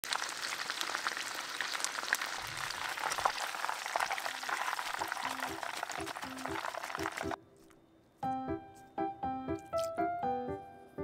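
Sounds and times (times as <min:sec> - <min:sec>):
food deep-frying in oil: 0:00.0 - 0:07.4.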